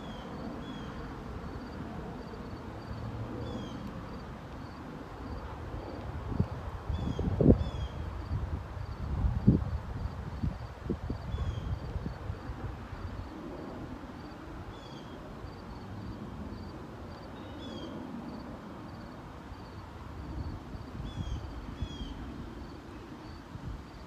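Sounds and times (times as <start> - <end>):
wind rumbling on microphone: 0.0 - 17.2, 19.7 - 24.0.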